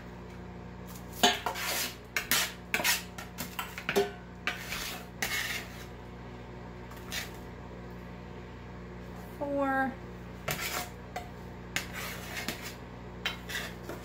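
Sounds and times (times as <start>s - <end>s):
metal cup scraping a metal sheet: 1.2s - 3.2s, 4.4s - 5.9s, 10.5s - 11.0s, 11.8s - 14.0s.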